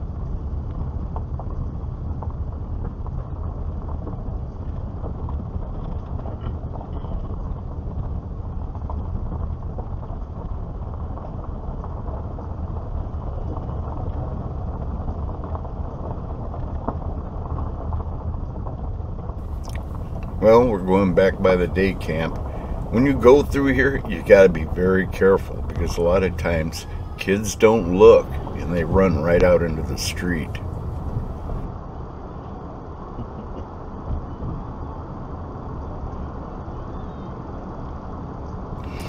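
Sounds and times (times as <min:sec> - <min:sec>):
car interior road rumble: 0:19.2 - 0:31.7, 0:38.8 - 0:39.0.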